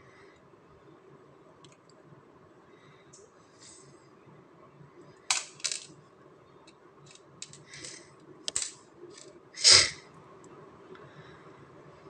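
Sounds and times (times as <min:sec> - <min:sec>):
small clicks and clinks: 0:06.6 - 0:09.3.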